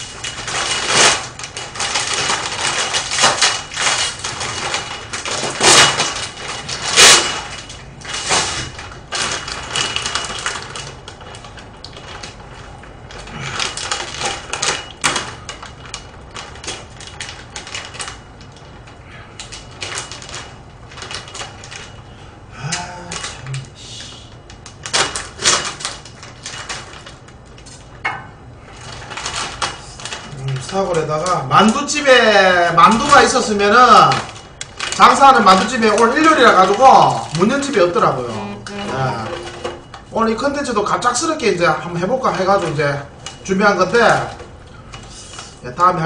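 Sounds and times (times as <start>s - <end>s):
plastic packaging crinkling: 0.0s - 46.0s.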